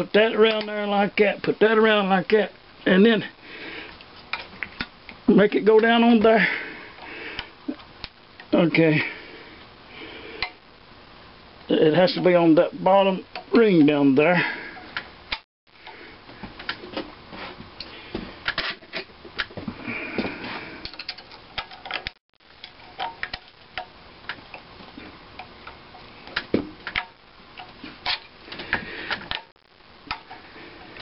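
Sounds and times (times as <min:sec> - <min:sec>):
small metallic clicks and scrapes: 0:20.8 - 0:31.0.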